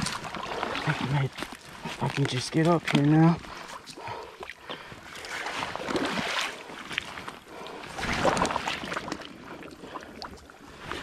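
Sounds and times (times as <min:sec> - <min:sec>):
scuffing and rustling on bank: 0:00.0 - 0:04.0
water sloshing around legs: 0:00.0 - 0:11.0.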